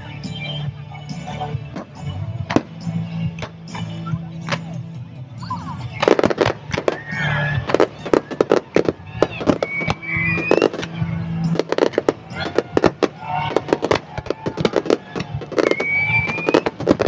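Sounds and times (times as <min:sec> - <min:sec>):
fireworks bangs and crackles: 0:01.6 - 0:04.8, 0:05.9 - 0:17.0
rising firework whistle: 0:06.7 - 0:17.0.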